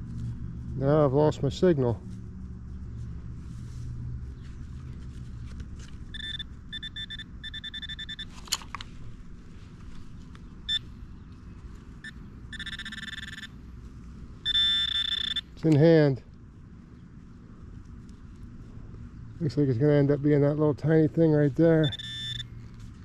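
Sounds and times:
low steady rumble: 0.0s - 23.0s
pinpointer buzzing beeps: 6.1s - 8.3s, 12.0s - 13.5s, 14.4s - 15.6s, 21.8s - 22.5s.

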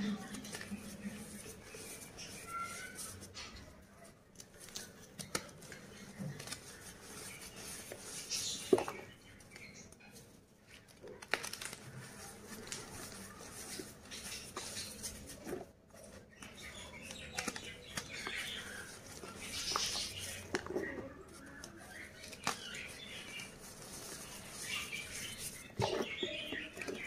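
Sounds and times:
powdery rustling of crumbs: 0.0s - 27.0s
chalk crunching between hands: 16.4s - 27.0s.

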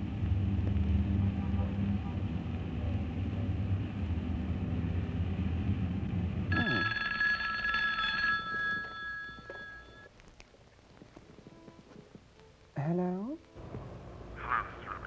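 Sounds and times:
low steady rumble: 0.0s - 11.6s
telephone bell ringing: 6.5s - 10.1s.

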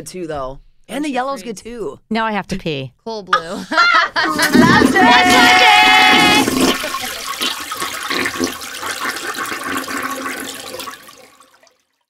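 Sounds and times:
toilet flushing: 4.2s - 11.9s.

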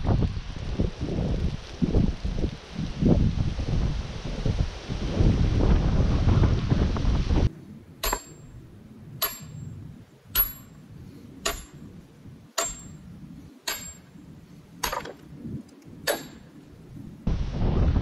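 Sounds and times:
sledgehammer striking with metallic ring: 8.0s - 8.6s, 9.2s - 10.8s, 11.4s - 11.9s, 12.6s - 13.0s, 13.6s - 14.1s, 16.1s - 16.5s.

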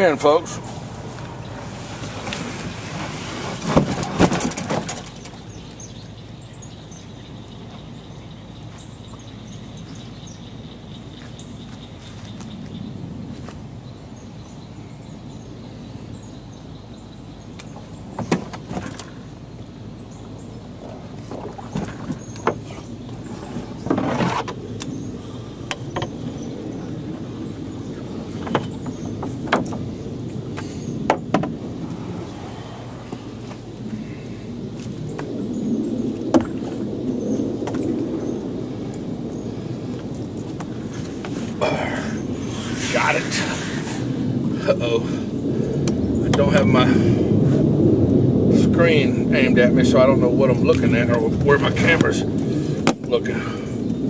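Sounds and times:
steady low hum: 0.0s - 54.0s
sharp knocks and clicks: 28.4s - 29.8s, 31.1s - 31.6s.

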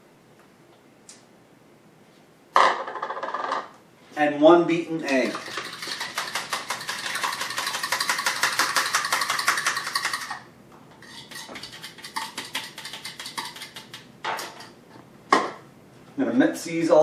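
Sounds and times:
fork clicking against bowl: 11.2s - 14.1s.

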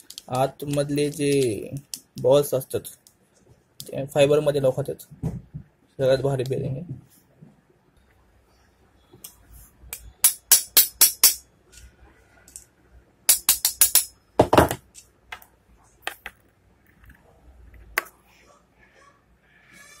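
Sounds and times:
hammer tapping metal: 9.9s - 11.4s, 13.3s - 14.8s.

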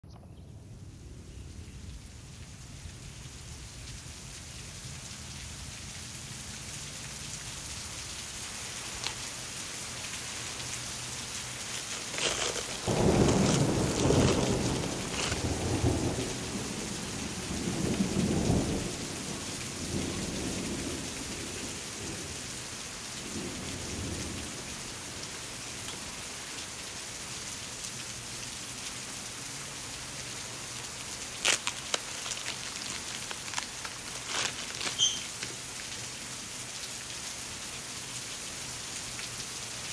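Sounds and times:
steady rain: 0.5s - 39.9s
rolling thunder: 12.8s - 22.3s.

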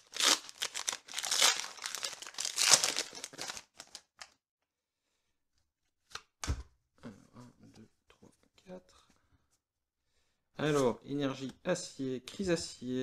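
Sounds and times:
foil wrapper crinkling and tearing: 0.0s - 4.4s.

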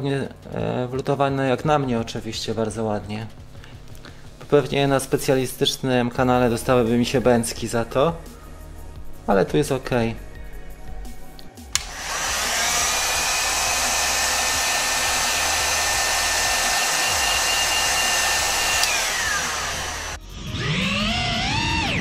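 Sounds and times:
heat gun switch click: 11.8s - 12.0s, 17.6s - 20.0s
heat gun blowing air: 11.8s - 20.2s.

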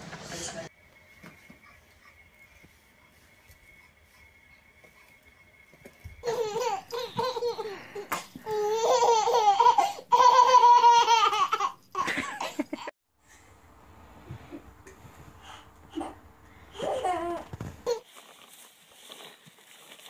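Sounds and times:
baby laughing: 6.2s - 12.9s.

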